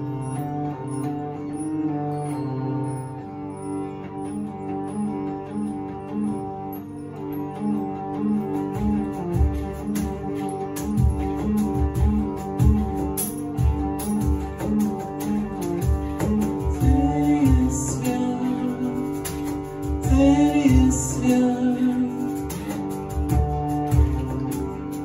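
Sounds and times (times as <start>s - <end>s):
cajon beat: 0.0s - 2.5s, 3.1s - 25.0s
hurdy-gurdy melody with drone: 0.0s - 25.0s
man singing: 16.6s - 22.9s.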